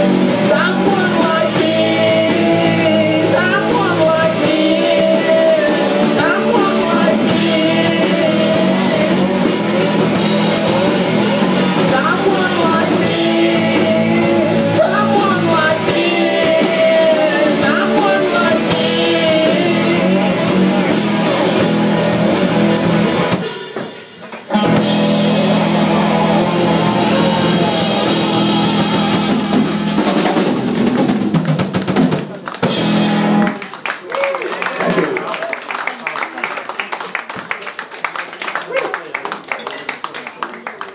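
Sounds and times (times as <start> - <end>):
electric bass: 0.0 - 23.4, 24.5 - 31.6, 32.6 - 33.6
drum kit: 0.0 - 33.7
electric guitars: 0.0 - 33.8.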